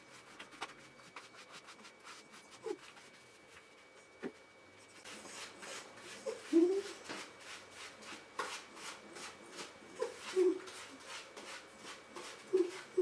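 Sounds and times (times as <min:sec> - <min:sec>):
hands scrubbing wet fur: 0:00.0 - 0:03.6.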